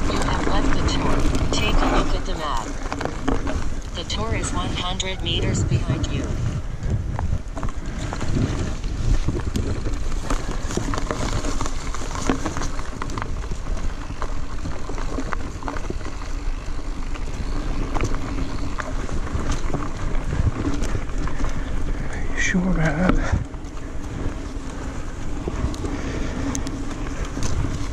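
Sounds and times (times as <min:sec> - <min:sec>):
bike clicks and rattles: 0:00.0 - 0:04.7, 0:05.4 - 0:27.9
tyre noise on dirt: 0:00.0 - 0:27.9
wind rushing over microphone: 0:00.0 - 0:27.9.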